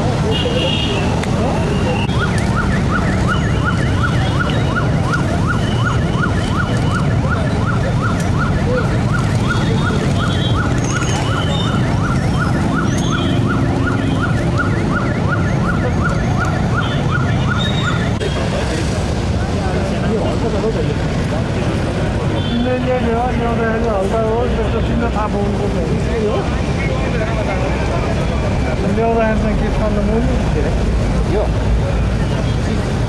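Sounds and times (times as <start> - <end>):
crowd noise: 0.0 - 33.0
traffic rumble: 0.0 - 33.0
siren wailing in fast yelp: 1.6 - 18.2.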